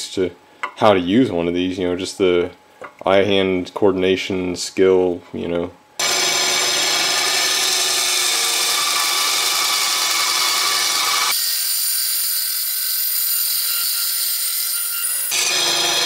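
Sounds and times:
bandsaw cutting wood: 0:06.0 - 0:16.0.

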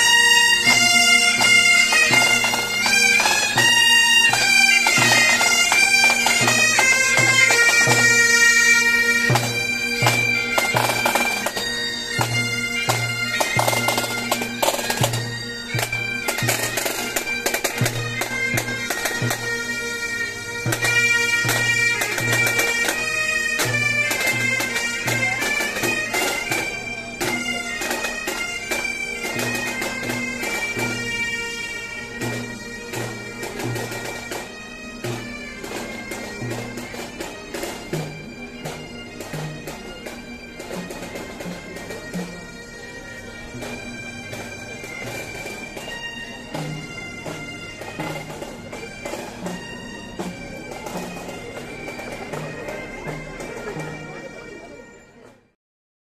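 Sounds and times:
drum beating: 0:00.0 - 0:19.7, 0:20.3 - 0:31.2, 0:43.4 - 0:54.1
bagpipes playing a melody: 0:00.0 - 0:55.5.

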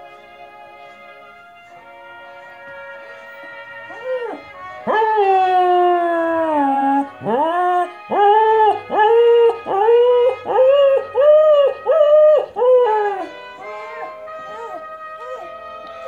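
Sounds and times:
dog howling: 0:03.9 - 0:16.0.

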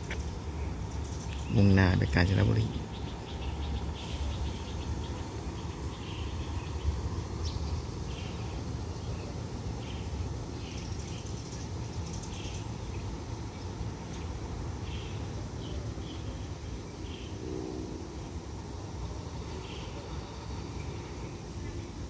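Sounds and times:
birds chirping: 0:00.0 - 0:17.5
diesel locomotive rumble: 0:00.0 - 0:22.0.

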